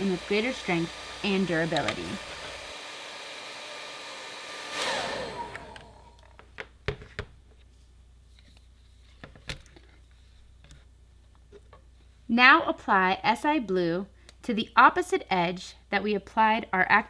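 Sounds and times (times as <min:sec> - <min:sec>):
hair dryer blowing: 0:00.0 - 0:06.4.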